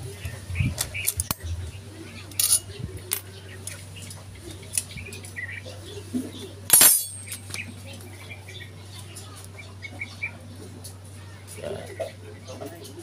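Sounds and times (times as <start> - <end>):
metal clicks and scrapes: 0.8 - 1.4
ringing metallic clank: 6.7 - 7.5.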